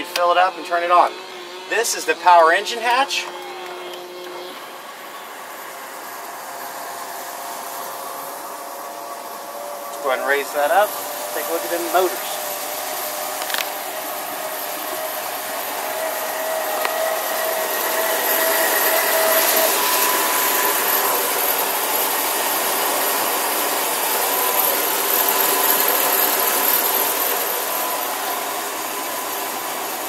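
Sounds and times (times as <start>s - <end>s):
electric lift motor whirring: 0.0s - 30.0s.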